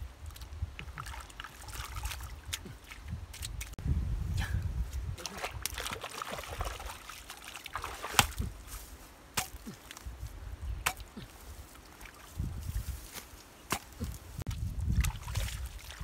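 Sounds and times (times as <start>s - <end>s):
water sloshing and dripping: 0.2s - 3.8s, 5.2s - 8.5s, 14.4s - 16.0s
hoe chopping into wet mud: 7.7s - 8.5s, 9.3s - 9.9s, 10.8s - 11.3s, 13.7s - 14.1s.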